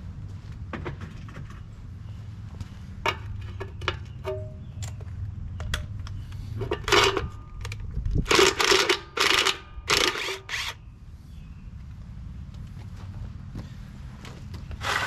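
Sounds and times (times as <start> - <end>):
cordless drill bursts: 8.3 - 10.8.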